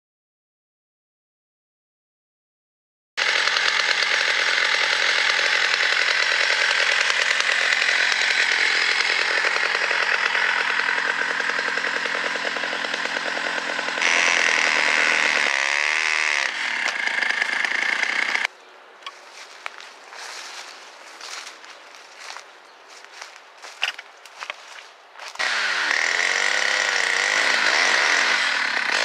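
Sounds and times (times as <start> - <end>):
chainsaw engine running winch: 3.2 - 18.5, 25.3 - 29.0.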